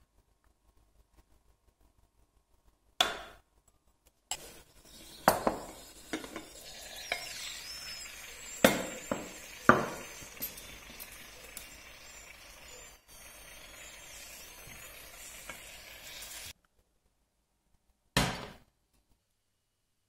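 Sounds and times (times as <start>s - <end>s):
glass lid and bowl clinking: 4.3s - 12.9s.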